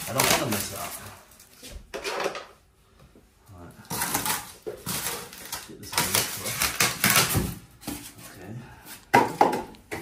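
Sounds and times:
packaging crinkling and rustling: 0.0 - 1.7, 3.9 - 8.2.

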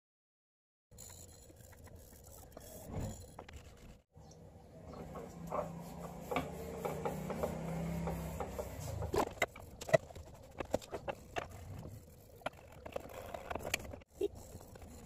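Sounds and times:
scouring pad scrubbing metal: 5.0 - 11.4.

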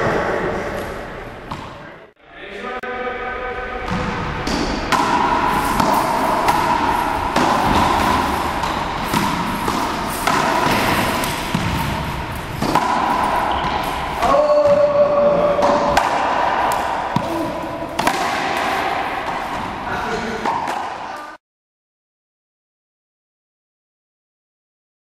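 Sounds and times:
racquetball hits: 1.4 - 1.9, 3.8 - 21.4.

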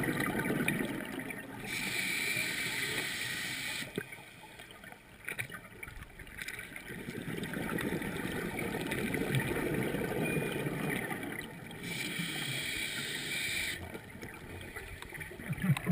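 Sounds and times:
regulator hissing inhalation: 11.8 - 13.8
bubbling exhalation underwater: 15.4 - 15.9.

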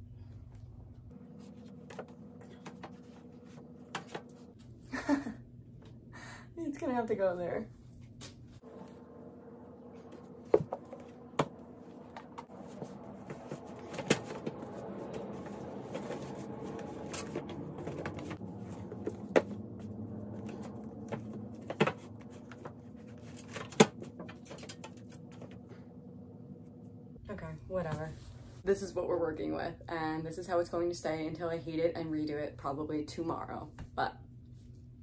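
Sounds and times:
low hum: 0.0 - 6.6, 7.4 - 28.6
books shuffling: 10.0 - 25.6.

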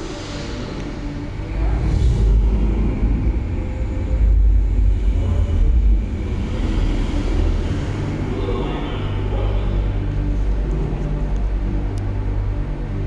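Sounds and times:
deep rumble through speakers: 0.0 - 13.0.

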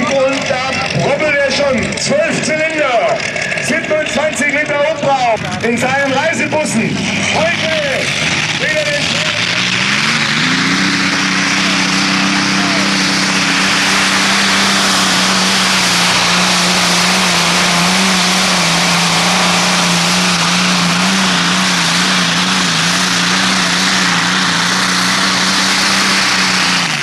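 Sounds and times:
aircraft engine droning under load: 0.0 - 27.0.

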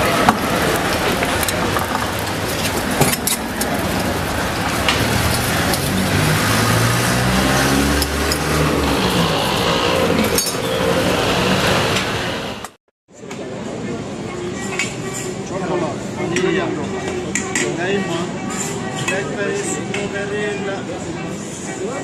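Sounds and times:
gas burners hissing: 0.0 - 12.7
passing vehicle engine hum: 0.0 - 12.7.

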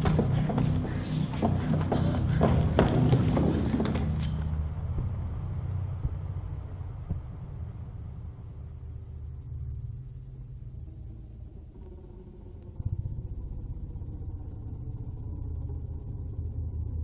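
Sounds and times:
low rumbling drone music: 0.0 - 17.0.

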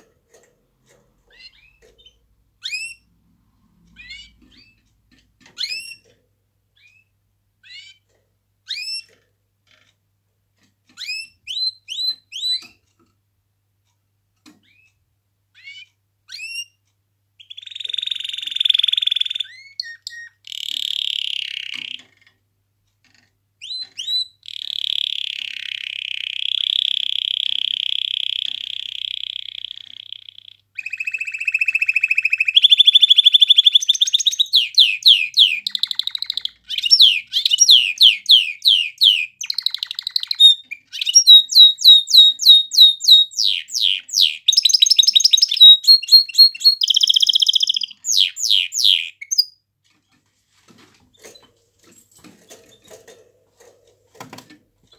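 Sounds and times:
canary singing trills: 0.8 - 3.1, 3.8 - 9.2, 10.9 - 12.8, 14.6 - 16.8, 17.4 - 22.1, 23.6 - 49.6.

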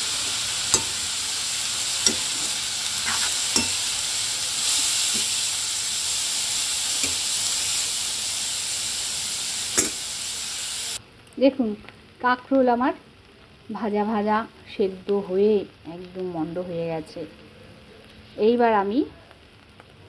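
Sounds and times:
vegetables sizzling in oil: 0.0 - 20.0
metal spatula knocking pan: 0.7 - 1.1, 2.0 - 4.0, 9.8 - 10.0.

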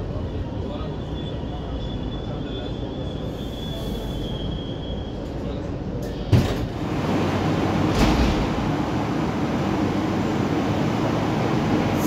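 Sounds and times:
metro train running noise: 0.0 - 12.0.

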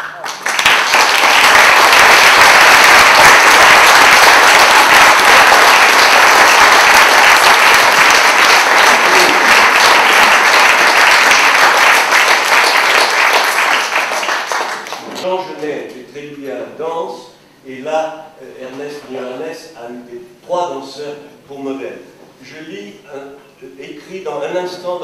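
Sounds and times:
audience applause: 0.0 - 15.2.

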